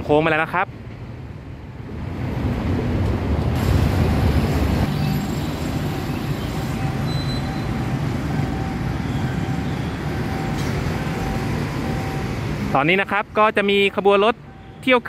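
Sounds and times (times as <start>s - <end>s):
road traffic: 0.0s - 15.0s
level crossing warning tone: 4.9s - 15.0s.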